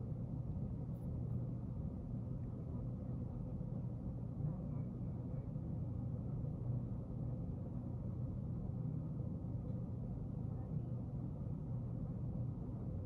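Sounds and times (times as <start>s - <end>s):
office room tone hum: 0.0s - 13.0s.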